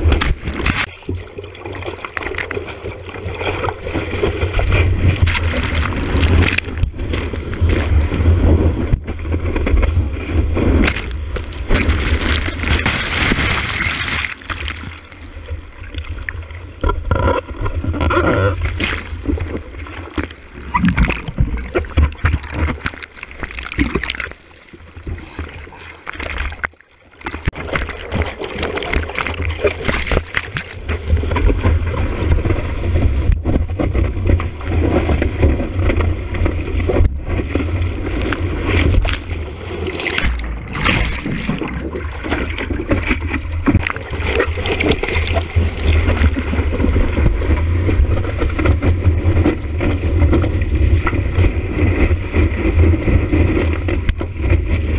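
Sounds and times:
seawater splashing and rushing: 0.0s - 16.9s, 17.5s - 54.9s
low rumble: 15.0s - 24.2s.

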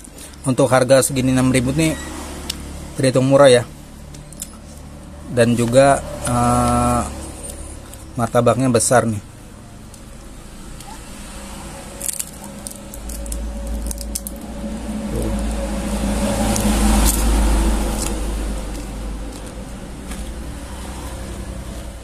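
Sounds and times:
paper wrapper crinkling: 12.0s - 14.5s
low rumble: 12.3s - 20.4s.

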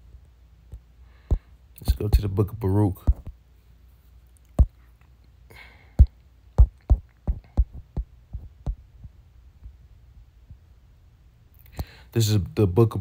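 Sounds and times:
sharp taps and knocks: 3.0s - 3.4s, 6.0s - 9.8s
soft rustle: 3.0s - 5.4s.

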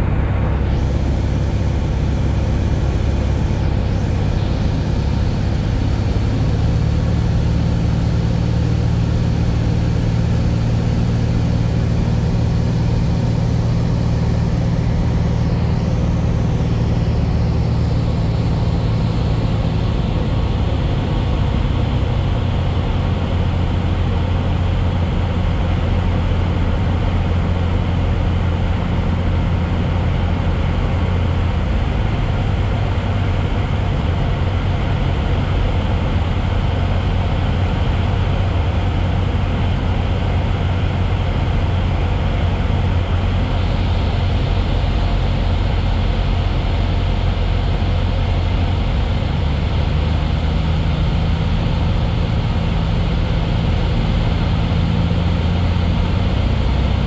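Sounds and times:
rushing air noise: 0.0s - 8.3s
airplane engines droning: 0.0s - 57.0s.

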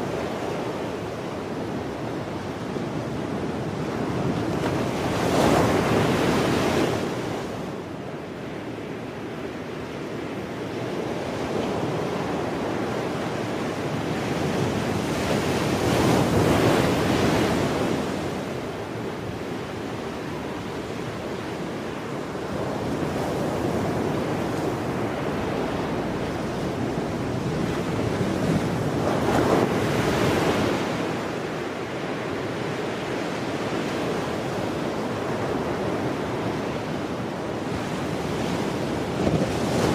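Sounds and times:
ocean surf breaking: 14.2s - 39.9s.

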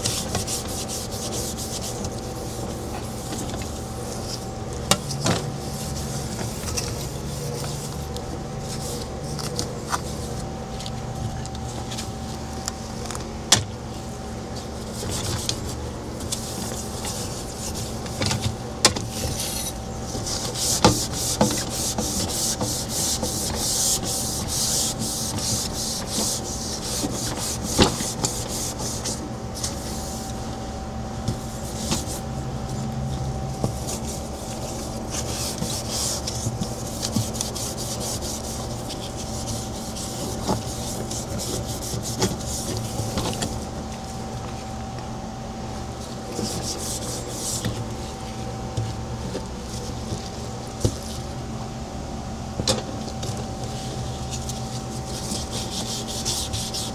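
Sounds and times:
scrubbing on hard surface: 0.0s - 4.5s, 19.1s - 30.3s, 33.5s - 43.3s, 53.7s - 56.9s
steady low hum: 0.0s - 56.9s.

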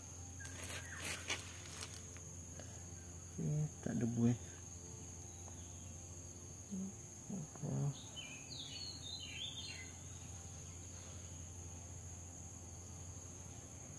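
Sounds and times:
high insect drone: 0.0s - 13.9s
low hum-like sounds: 0.0s - 13.9s
small bird chirping: 0.4s - 2.0s, 5.1s - 11.6s.

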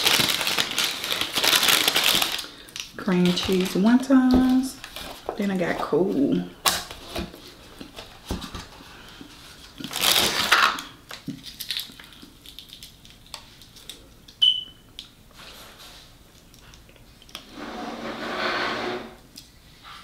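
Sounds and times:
fried wonton crackling: 0.0s - 3.9s, 9.6s - 14.3s
small clicks and crunches: 0.0s - 5.4s, 9.6s - 14.4s.

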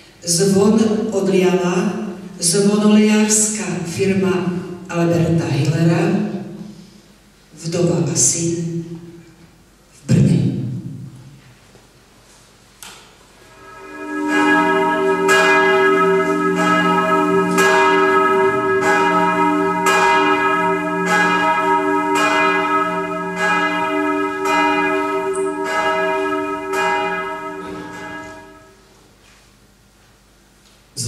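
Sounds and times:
church bell ringing: 13.4s - 28.8s
deep hum: 13.4s - 28.8s.

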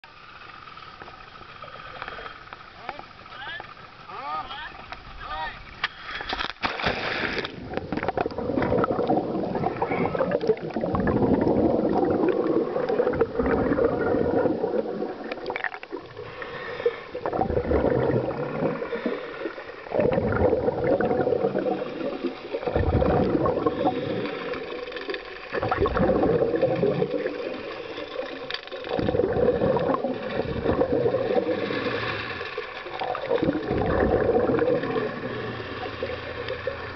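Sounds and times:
splash entering water: 6.6s - 7.6s
underwater regulator bubbles: 7.2s - 36.9s.

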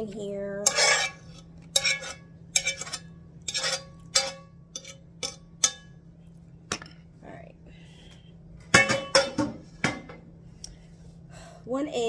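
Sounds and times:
metal fork scraping a metal pan: 0.6s - 5.9s.

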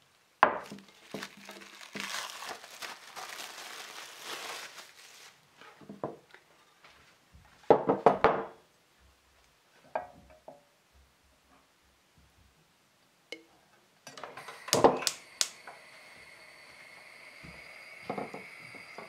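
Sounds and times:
cling film crinkling: 0.6s - 5.7s.

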